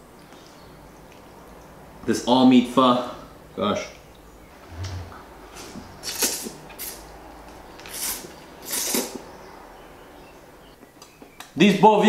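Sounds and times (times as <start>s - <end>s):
person slurping noodles: 4.7s - 5.2s.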